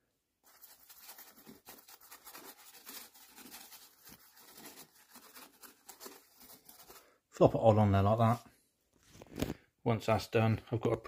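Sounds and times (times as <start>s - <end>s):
paintbrush scratchy strokes: 0.4s - 7.1s.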